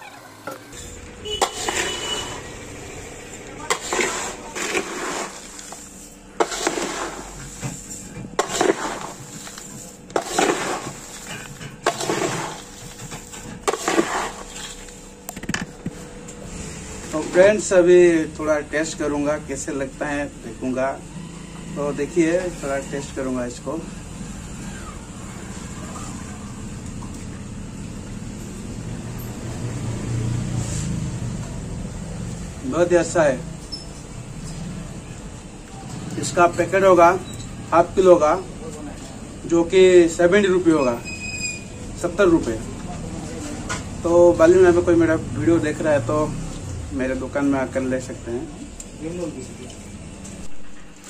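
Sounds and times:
snack mix tossed in metal bowl: 3.6 - 15.0.

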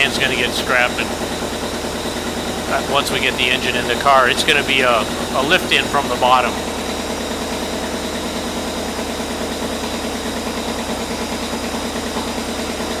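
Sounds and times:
rotary engine idling: 0.0 - 13.0.

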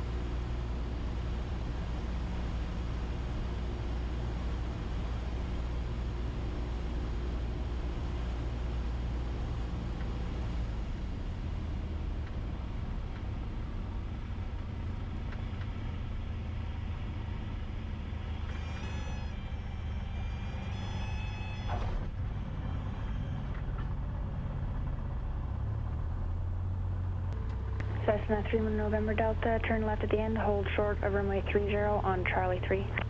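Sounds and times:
airplane engine droning: 0.0 - 33.0
high wavering warning tone: 18.2 - 24.5.

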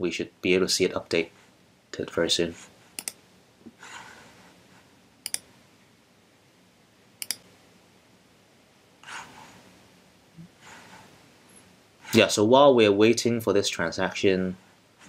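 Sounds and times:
computer mouse clicks: 3.0 - 3.2, 5.2 - 5.5, 7.2 - 7.5.

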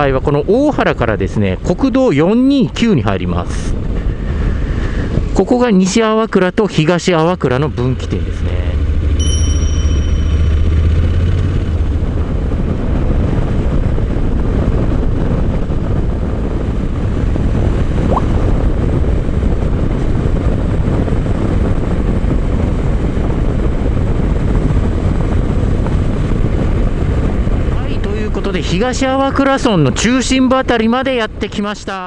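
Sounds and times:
wind and road noise: 0.0 - 32.0
motorcycle engine cruising: 7.6 - 28.3.

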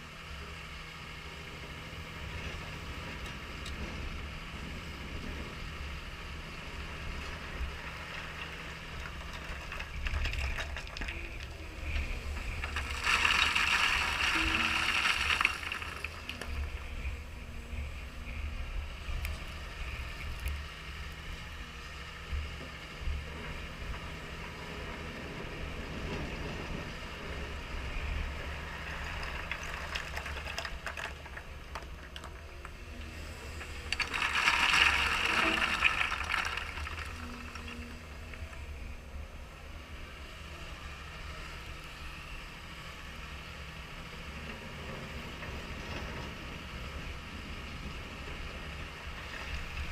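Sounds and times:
excavator diesel engine humming: 0.0 - 49.9
stones clattering: 12.1 - 16.7, 33.9 - 38.0
rock tumbling from bucket: 12.4 - 16.8, 33.8 - 38.0.

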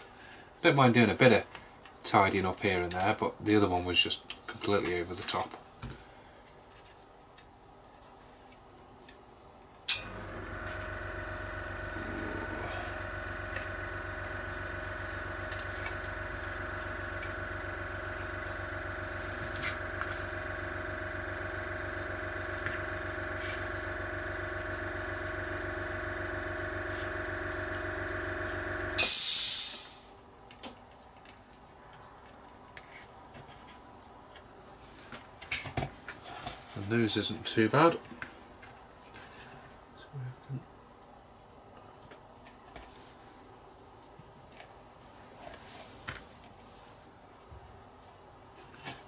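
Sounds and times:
airbrush compressor humming: 10.0 - 30.0
hiss of released air: 29.0 - 30.2.

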